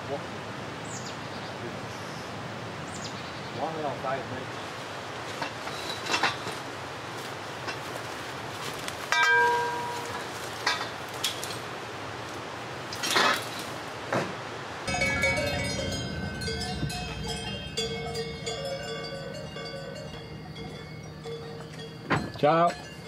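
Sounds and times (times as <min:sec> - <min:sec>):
metal pipes clanking: 0:05.4 - 0:06.6, 0:09.1 - 0:11.5, 0:14.9 - 0:23.0
cowbells jangling: 0:09.1 - 0:10.8, 0:14.9 - 0:23.0.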